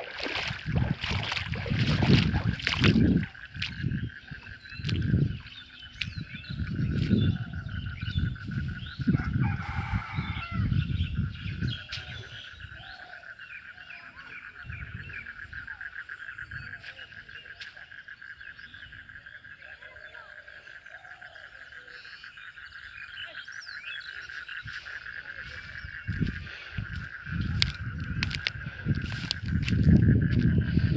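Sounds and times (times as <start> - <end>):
microphone rumbling: 0.0 - 12.8, 24.7 - 30.9
frogs calling in chorus: 0.0 - 30.9
bird chirps: 3.5 - 9.8.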